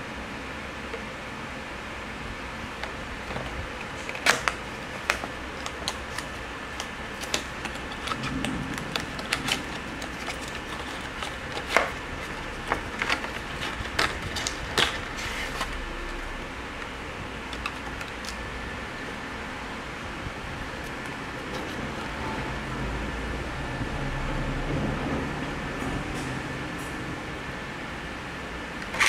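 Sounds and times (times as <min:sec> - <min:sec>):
cardboard box being opened: 0:03.4 - 0:16.2.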